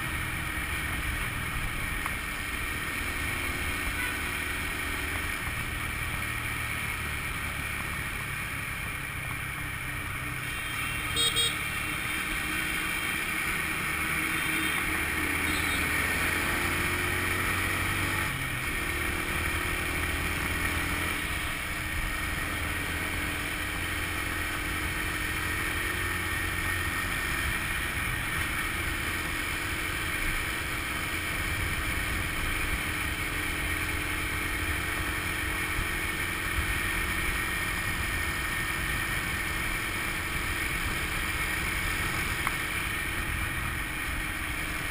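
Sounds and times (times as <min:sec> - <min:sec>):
scooter engine running: 0:00.0 - 0:17.6, 0:23.7 - 0:44.9
wind and road noise: 0:00.0 - 0:44.9
short horn beep: 0:10.5 - 0:11.7, 0:15.4 - 0:15.9.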